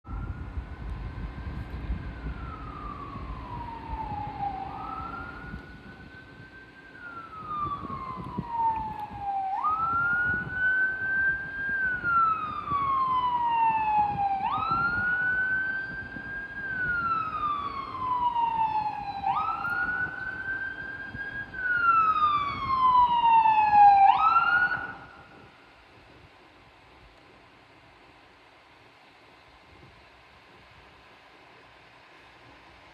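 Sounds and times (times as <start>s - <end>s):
fire engine siren wailing: 0.0s - 26.2s.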